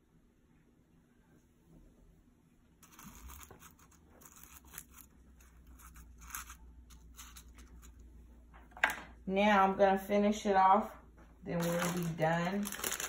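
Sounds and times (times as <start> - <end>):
dried petals crinkling in jar: 2.8 - 8.0, 11.5 - 13.0.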